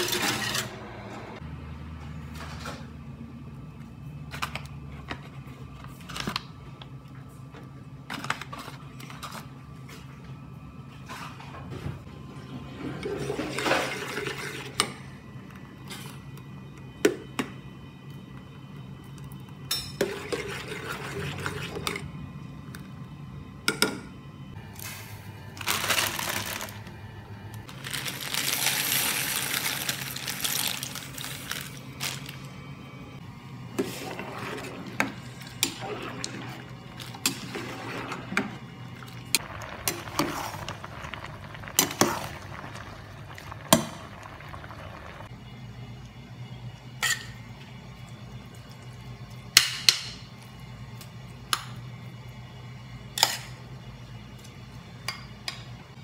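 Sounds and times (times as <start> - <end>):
utensils and dishes clinking: 0.0 - 0.8
low hum: 29.8 - 49.5.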